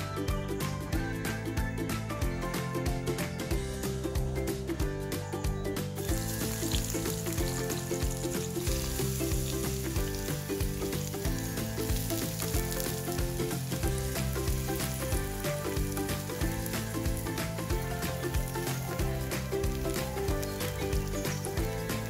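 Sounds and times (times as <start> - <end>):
background music: 0.0 - 22.0
eggplant sizzling in hot oil: 6.0 - 22.0.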